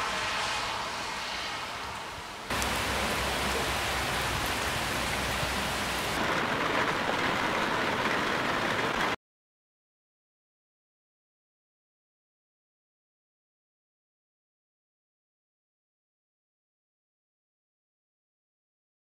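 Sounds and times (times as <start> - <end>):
steady rain falling: 1.9 - 9.2.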